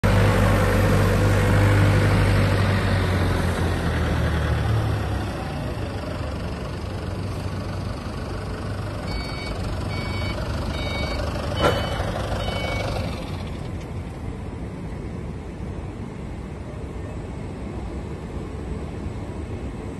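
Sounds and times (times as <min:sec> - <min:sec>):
forklift engine running: 0:00.0 - 0:15.0
reversing alarm beeps: 0:09.0 - 0:13.2.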